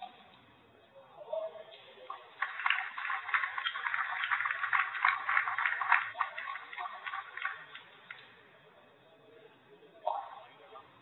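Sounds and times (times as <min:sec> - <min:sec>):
spectators applauding: 0:02.1 - 0:08.2.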